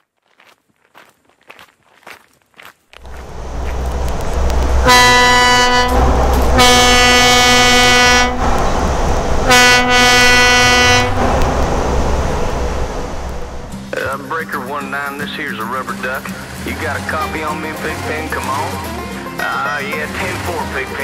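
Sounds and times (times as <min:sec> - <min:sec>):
truck air horn blasts: 0:03.0 - 0:13.7
road noise: 0:03.0 - 0:14.1
truck engine rumble: 0:03.0 - 0:14.1.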